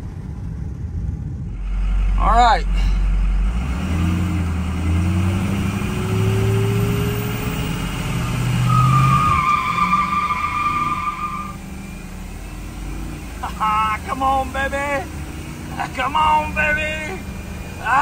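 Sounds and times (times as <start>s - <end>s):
diesel engine accelerating: 0.0s - 18.0s
high whistling whine: 1.4s - 14.2s.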